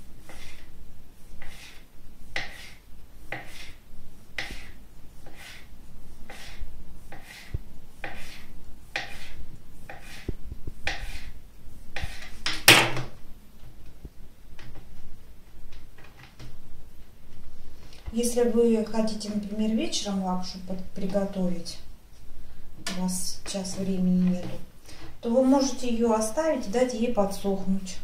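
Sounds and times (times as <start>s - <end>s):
knife chopping dough on a table: 0.2s - 0.7s, 1.4s - 3.8s, 4.4s - 5.7s, 6.3s - 11.4s, 12.0s - 13.2s
loud knock on a table: 12.7s - 13.1s.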